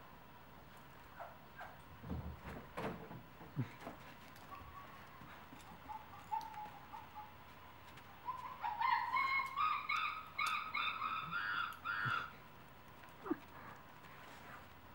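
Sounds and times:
dog whining: 4.5s - 7.4s, 8.2s - 12.4s.

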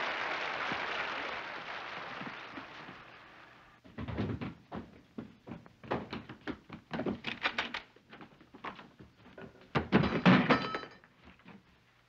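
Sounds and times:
applause: 0.0s - 3.8s
running footsteps on a floor: 3.8s - 7.2s.

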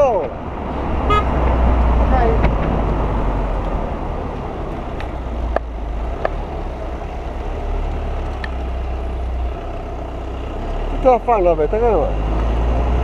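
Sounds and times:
road noise: 0.0s - 13.0s.

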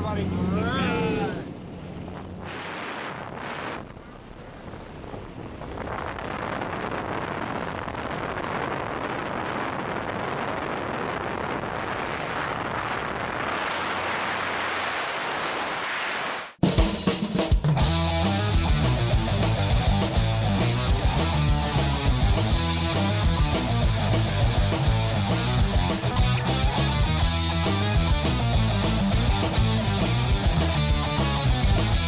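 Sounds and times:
low engine drone: 0.0s - 15.8s
music: 16.6s - 32.0s.

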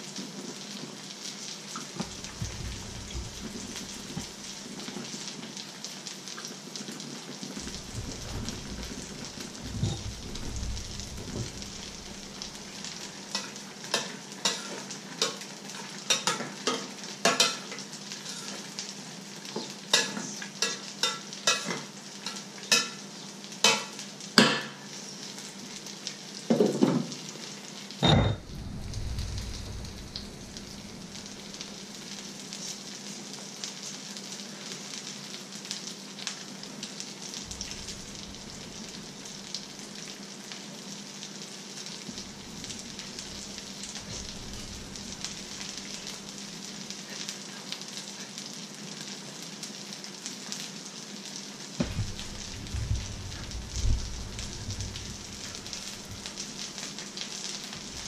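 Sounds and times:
food sizzling in a pan: 0.0s - 58.0s
metal clank: 28.0s - 28.5s.

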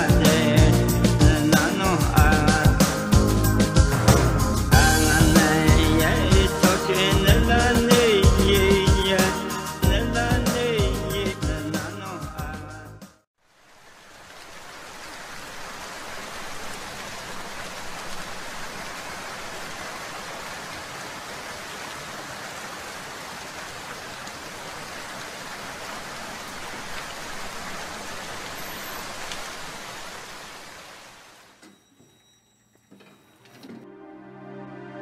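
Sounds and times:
steady rain falling: 13.4s - 31.6s.

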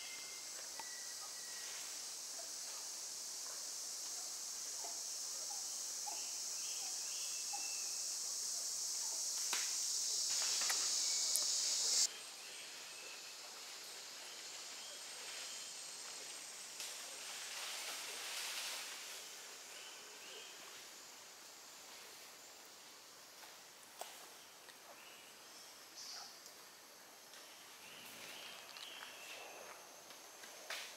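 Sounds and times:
faint insect hiss: 0.0s - 30.9s
cicada buzzing: 1.5s - 12.1s.

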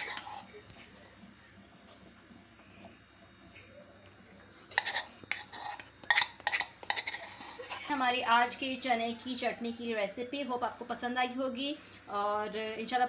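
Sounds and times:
metal spoon scraping glass dish: 4.7s - 7.9s.

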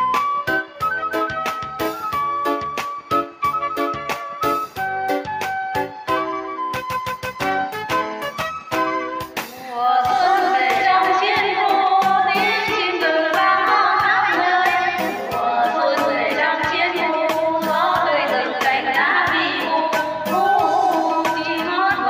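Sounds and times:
backing track with steady beat: 0.0s - 22.0s
women singing together: 9.6s - 22.0s.

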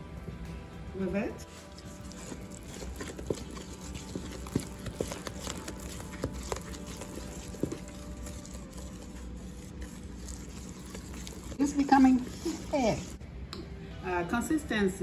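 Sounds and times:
wooden spoon stirring batter: 1.4s - 13.2s.

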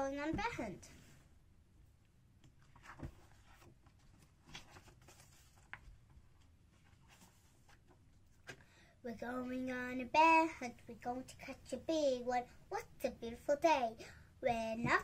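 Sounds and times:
book pages turning: 2.4s - 8.7s.

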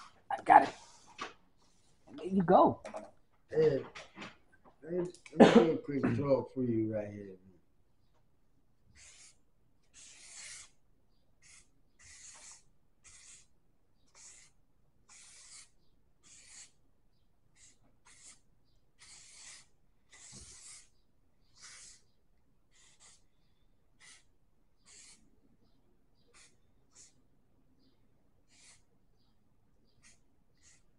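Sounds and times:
marker scratching on paper: 9.0s - 10.8s, 11.4s - 16.8s, 17.5s - 23.3s, 24.0s - 25.3s, 26.2s - 27.2s, 28.5s - 28.9s, 29.9s - 30.9s.

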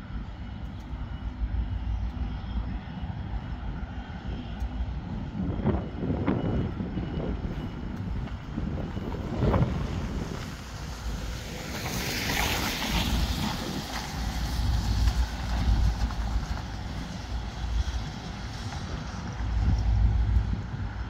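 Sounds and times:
wind buffeting microphone: 0.0s - 21.0s
tyres hissing on wet road: 9.7s - 21.0s.

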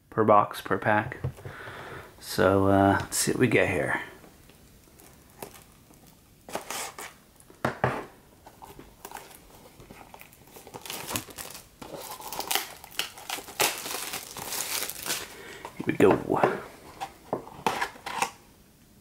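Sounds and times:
plastic wrap crinkling and tearing: 4.7s - 7.4s, 8.4s - 16.1s
utility knife slitting plastic wrap: 10.8s - 15.3s.

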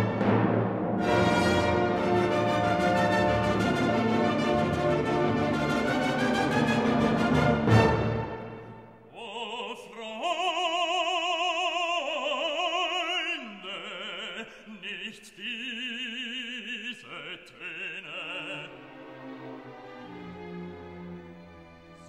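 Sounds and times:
operatic singing with vibrato: 8.9s - 19.6s.

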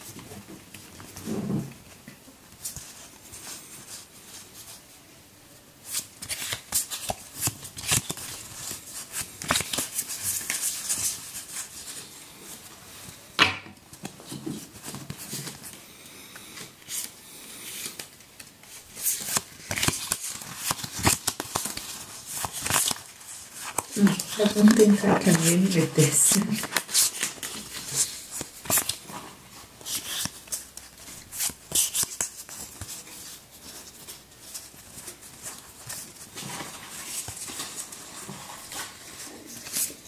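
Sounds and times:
playing cards flicking and snapping: 5.9s - 11.7s, 17.7s - 24.8s, 26.2s - 29.1s, 29.8s - 37.9s.

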